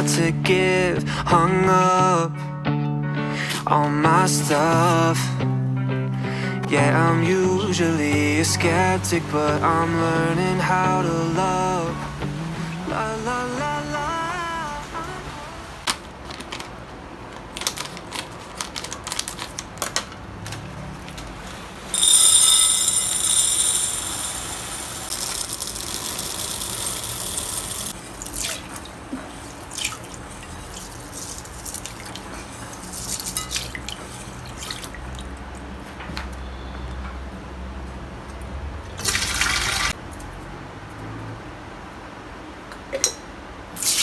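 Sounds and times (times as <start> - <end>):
plastic bag crinkling: 17.4 - 20.0, 25.1 - 28.0
dried beans pouring into a bowl: 21.9 - 28.0
water pouring: 22.0 - 32.3.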